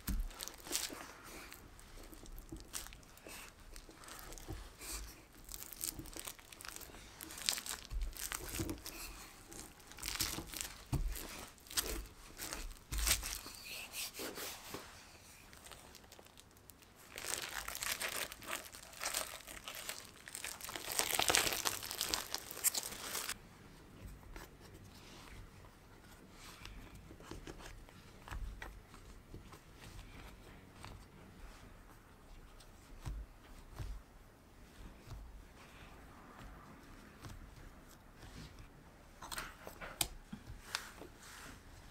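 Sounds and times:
cling film crinkling: 0:00.0 - 0:13.6, 0:15.5 - 0:23.4.

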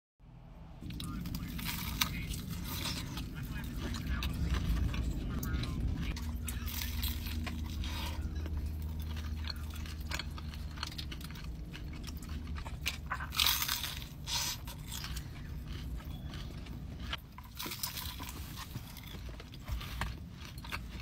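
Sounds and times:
low steady hum: 0:00.2 - 0:21.0
crunching fried chicken: 0:00.8 - 0:21.0.

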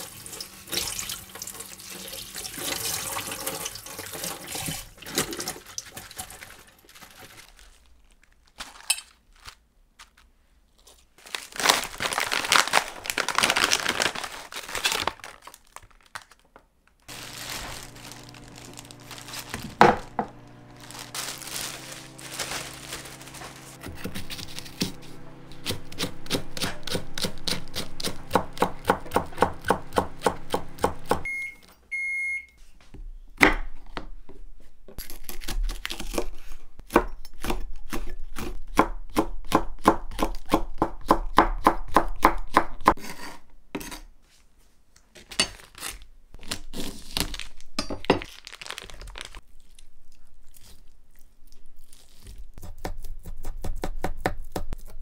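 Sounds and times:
rustling and handling noise: 0:04.6 - 0:26.9, 0:44.2 - 0:52.6
knife cutting a chili: 0:23.8 - 0:30.6, 0:35.0 - 0:44.1, 0:52.2 - 0:55.0
knife chopping on wooden board: 0:23.8 - 0:31.2
short electronic beeps: 0:31.3 - 0:32.6.

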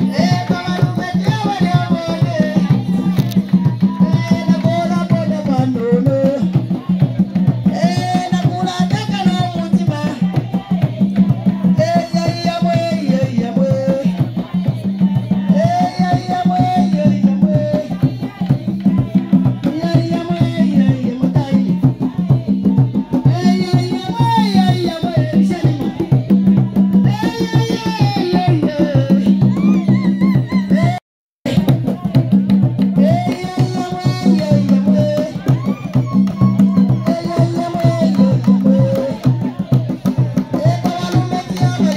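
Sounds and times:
woman singing into microphone: 0:00.0 - 0:32.2, 0:33.0 - 0:41.9
hand-drumming on wooden drums: 0:00.0 - 0:41.9.

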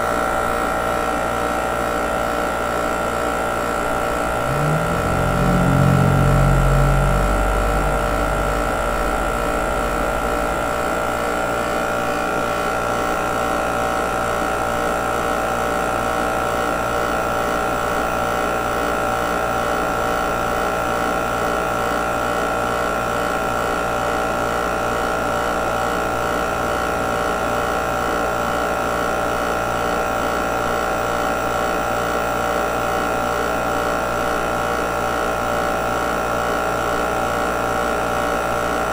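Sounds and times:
machine hum with high whine: 0:00.0 - 0:13.5
low rumble: 0:03.8 - 0:11.4.

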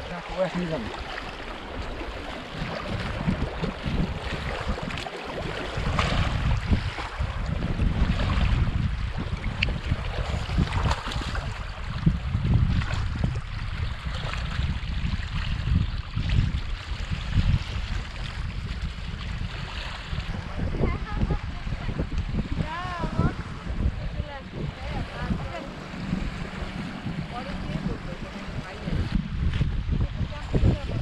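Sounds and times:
small waves lapping on stones: 0:00.0 - 0:12.0
splashes in shallow water: 0:00.0 - 0:31.0
wind buffeting microphone: 0:00.0 - 0:31.0.

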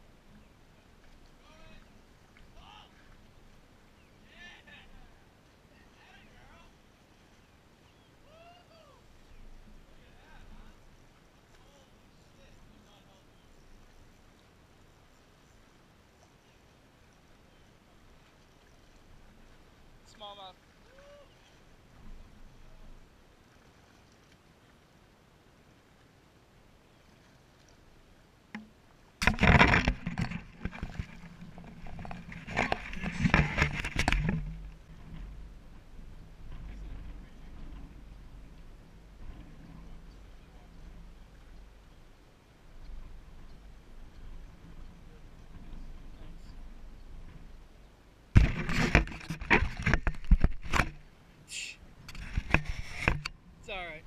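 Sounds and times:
sharp knocks: 0:28.6 - 0:31.1, 0:48.4 - 0:51.0
camera handling scraping and bumping: 0:29.2 - 0:34.6, 0:48.4 - 0:51.0, 0:52.1 - 0:53.3.

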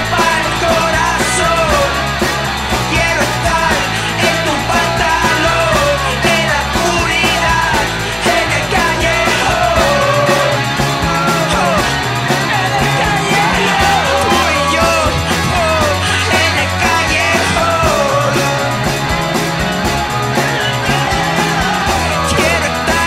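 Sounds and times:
rock and roll with shouted singing: 0:00.0 - 0:23.0.

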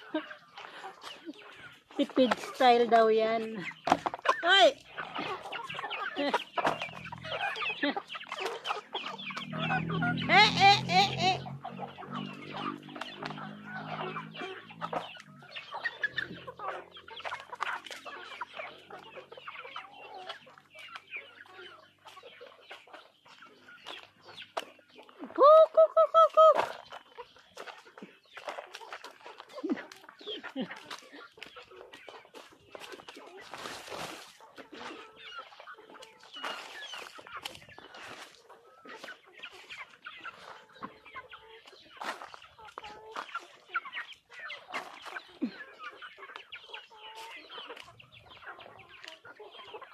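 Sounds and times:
chickens clucking and chirping: 0:00.0 - 0:49.9.

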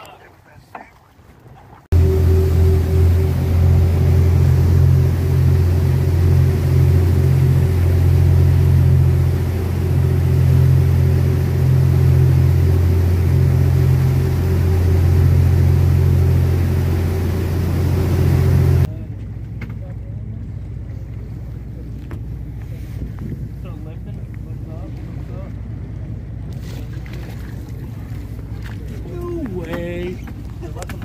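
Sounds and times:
motorboat engines droning: 0:01.3 - 0:31.0.

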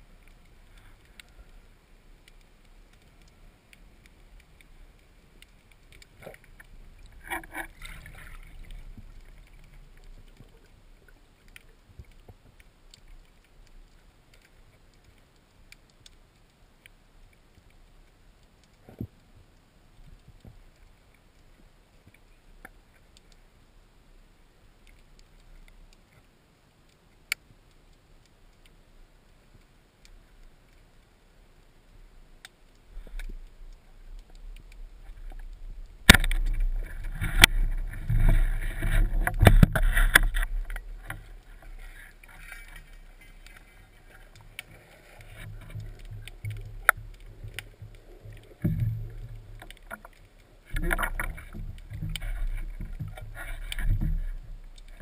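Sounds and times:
underwater rushing water: 0:00.0 - 0:55.0
knocks underwater: 0:36.0 - 0:41.3, 0:45.5 - 0:50.0, 0:50.7 - 0:54.5.

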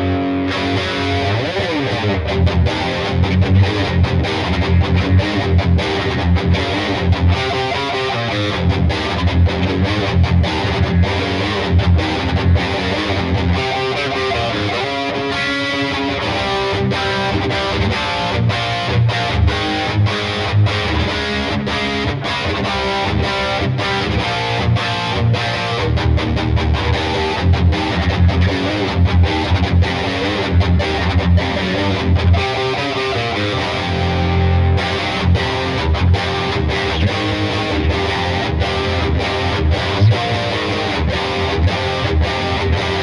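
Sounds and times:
distorted electric guitar chord riffs: 0:00.0 - 0:43.0.

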